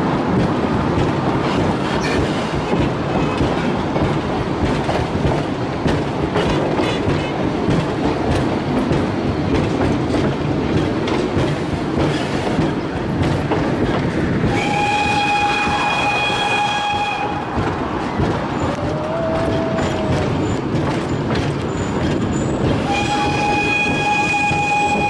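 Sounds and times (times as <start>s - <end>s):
train carriages rumbling: 0.0s - 25.0s
wheels clicking over rail joints: 0.0s - 25.0s
steam whistle blast: 14.5s - 17.6s, 22.8s - 25.0s.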